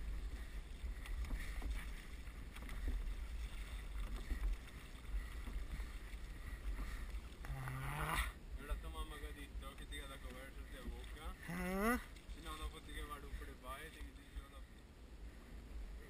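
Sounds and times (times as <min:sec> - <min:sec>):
wind rumble on microphone: 0:00.0 - 0:09.9
oars swishing through water: 0:00.0 - 0:16.0
water swells: 0:00.0 - 0:16.0.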